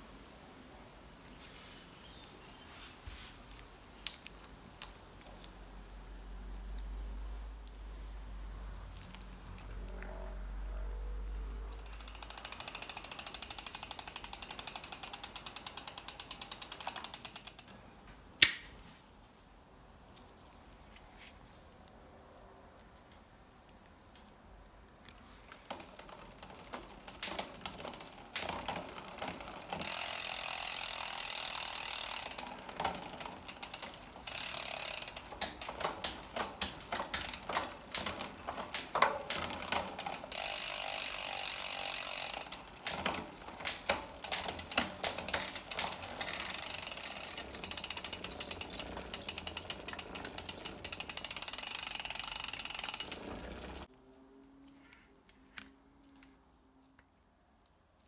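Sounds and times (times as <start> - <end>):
bicycle chain buzzing: 11.2 - 17.7, 25.5 - 53.9
freehub pawls clicking: 11.3 - 17.8, 25.1 - 53.9.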